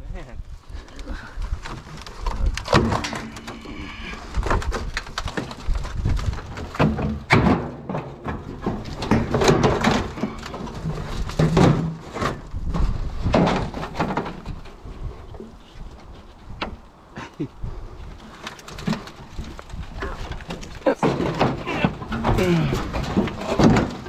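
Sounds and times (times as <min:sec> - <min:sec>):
tin sheets scraping and clattering: 0:01.7 - 0:14.6, 0:18.3 - 0:24.0
loud knocks of tin sheets: 0:06.8 - 0:12.4.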